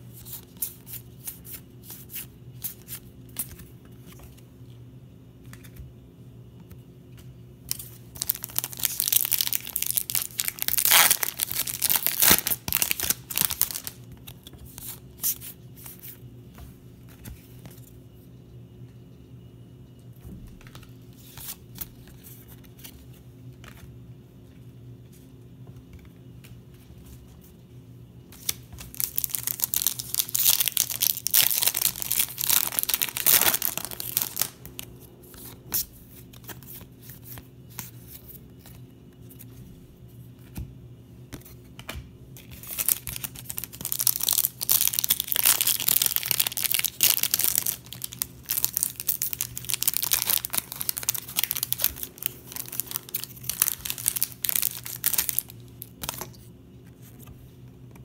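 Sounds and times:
foil wrappers tearing and crinkling: 0:07.7 - 0:14.0, 0:28.8 - 0:34.9, 0:42.6 - 0:56.3
cards rustling: 0:07.7 - 0:16.2, 0:28.3 - 0:39.6, 0:41.3 - 0:56.4.

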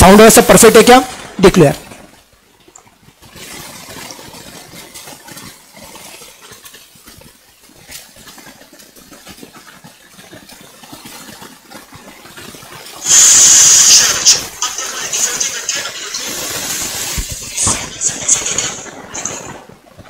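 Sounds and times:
faint crackling hiss: 0:00.0 - 0:20.0
loud burst of hissing static: 0:13.0 - 0:19.5.

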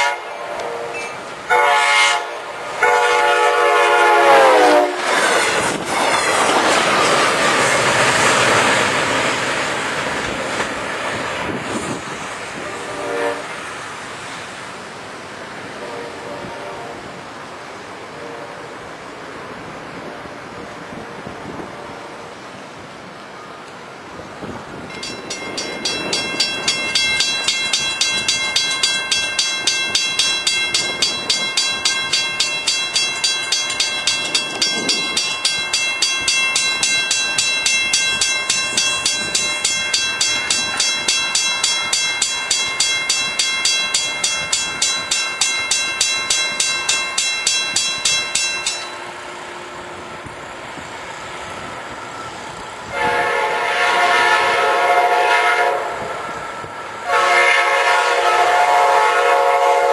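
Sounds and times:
locomotive horn blowing: 0:00.0 - 0:05.1, 0:12.6 - 0:13.6, 0:15.7 - 0:17.2, 0:18.1 - 0:18.7, 0:52.9 - 0:59.9
railroad crossing bell ringing: 0:00.9 - 0:04.7, 0:24.8 - 0:50.2.

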